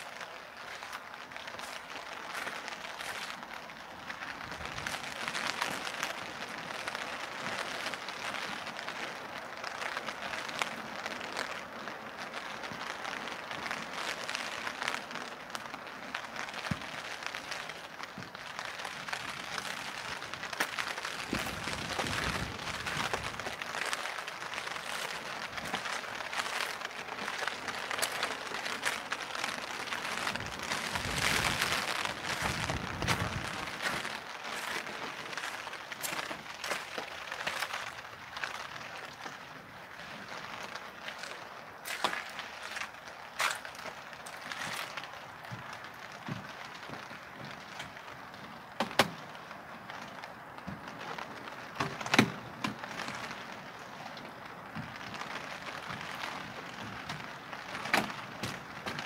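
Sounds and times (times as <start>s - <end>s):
rain pattering on plastic umbrella: 0.0s - 59.0s
steady hiss of rain: 0.0s - 59.0s.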